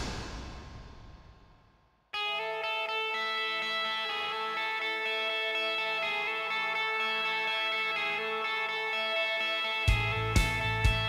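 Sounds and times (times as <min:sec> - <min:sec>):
held guitar chords: 0:02.2 - 0:11.0.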